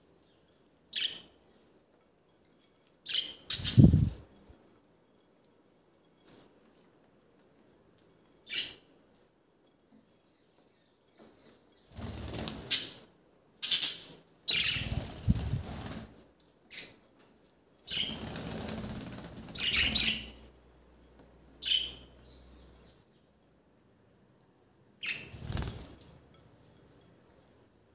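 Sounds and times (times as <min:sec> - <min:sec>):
birds flapping wings: 0:11.9 - 0:13.0, 0:14.7 - 0:16.2, 0:17.9 - 0:20.2, 0:25.2 - 0:26.1.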